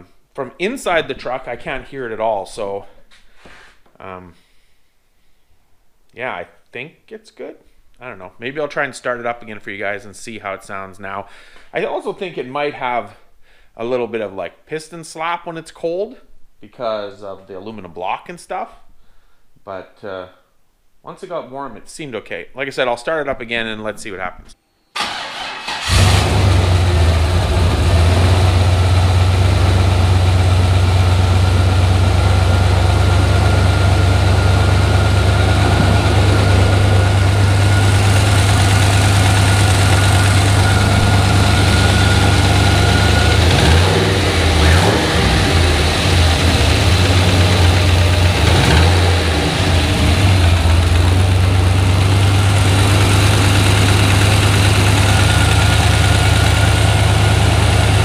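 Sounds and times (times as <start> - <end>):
car engine idling: 25.0 - 58.0
engine lifter noise: 25.0 - 58.0
engine revving: 25.0 - 58.0.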